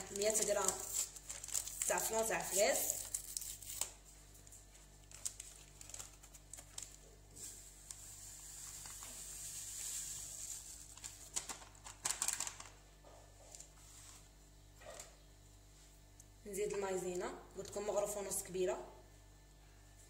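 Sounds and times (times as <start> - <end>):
paper packet crackling: 0.0 - 12.8
paper rustling: 0.0 - 12.8
powder pouring hiss: 7.3 - 11.0.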